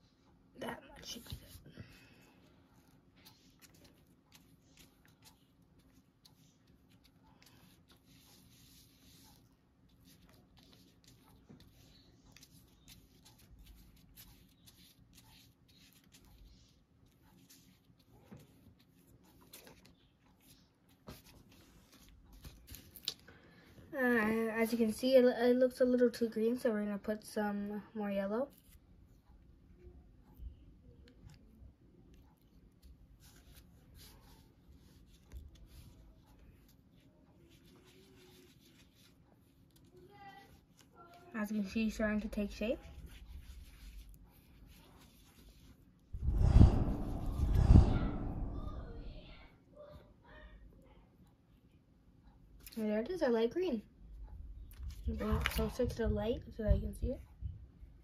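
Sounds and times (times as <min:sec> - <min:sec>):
paintbrush scrubbing on card: 0:02.7 - 0:19.8, 0:32.8 - 0:39.9, 0:42.0 - 0:47.7.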